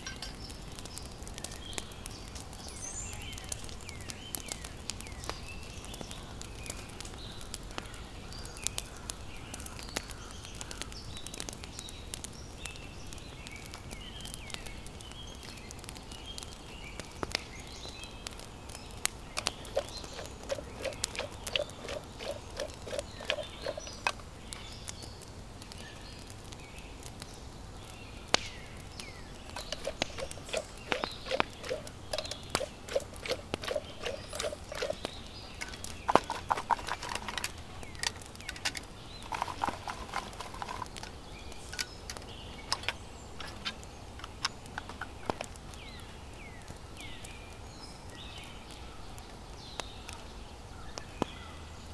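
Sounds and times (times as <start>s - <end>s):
campfire crackling and popping: 0.0s - 51.9s.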